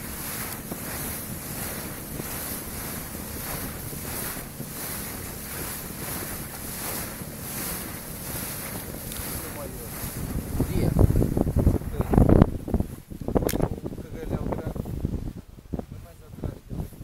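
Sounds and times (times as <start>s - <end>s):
motorboat engine and churning water: 0.0s - 17.0s
wind buffeting microphone: 0.0s - 17.0s.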